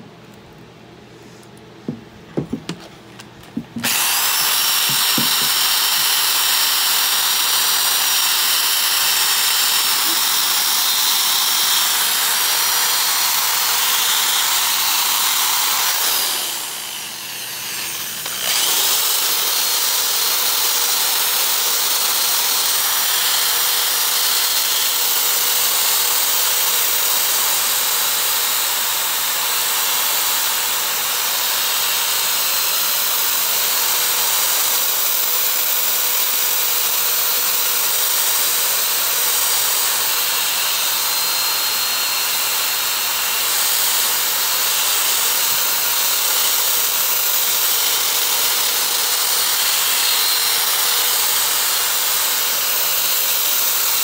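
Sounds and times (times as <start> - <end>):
electric drill motor whine: 3.5 - 54.0.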